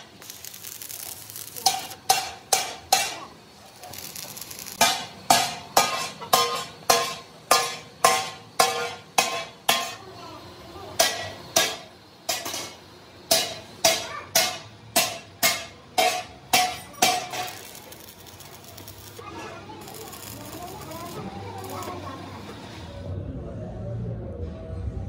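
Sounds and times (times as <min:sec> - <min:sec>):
hammer striking steel: 0:01.1 - 0:03.4, 0:04.0 - 0:10.0, 0:11.0 - 0:19.2.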